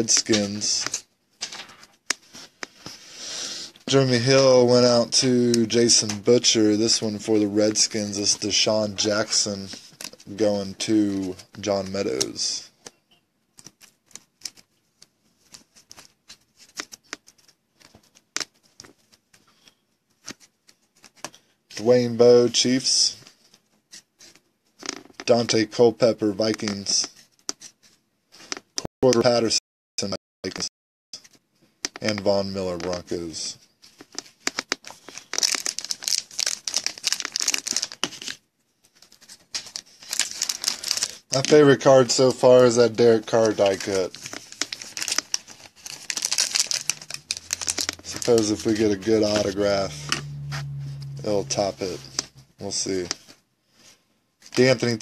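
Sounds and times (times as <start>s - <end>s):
foil wrapper crinkling: 34.1s - 38.4s, 39.0s - 42.0s, 43.2s - 49.8s.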